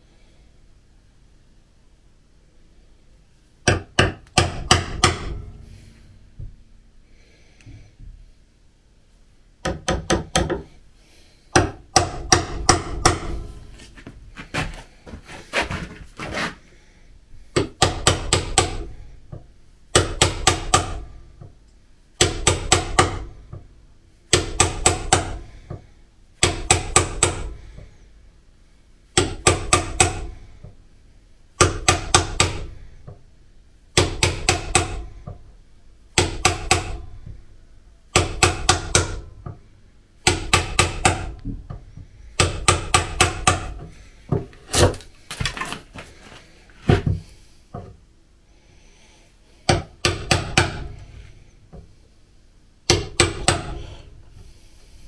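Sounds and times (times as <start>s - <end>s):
hammer striking a chisel: 3.7s - 5.5s, 9.6s - 10.7s, 11.5s - 13.5s, 17.6s - 21.5s, 22.2s - 23.6s, 24.3s - 25.8s, 26.4s - 27.6s, 29.2s - 30.4s, 31.6s - 33.2s, 34.0s - 35.4s, 36.2s - 37.1s, 38.1s - 39.6s, 40.2s - 41.5s, 42.4s - 43.8s, 49.7s - 51.1s, 52.9s - 54.1s.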